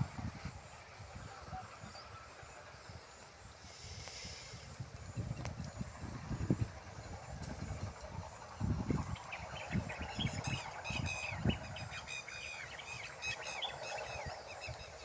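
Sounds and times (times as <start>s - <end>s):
birds chirping: 0.0s - 15.0s
low rumble: 3.9s - 15.0s.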